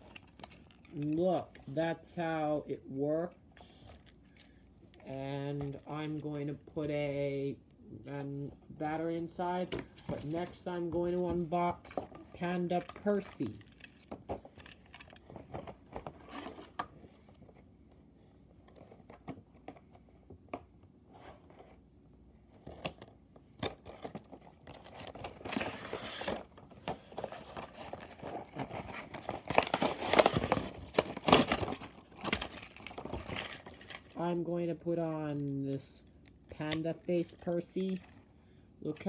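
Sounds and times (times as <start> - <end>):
packaging crinkling and tearing: 22.7 - 34.2.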